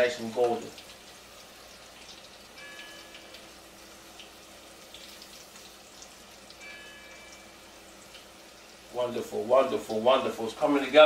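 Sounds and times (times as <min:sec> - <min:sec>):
onions sizzling in hot oil: 0:00.0 - 0:11.0
church bell strikes: 0:02.6 - 0:03.3, 0:06.6 - 0:07.6.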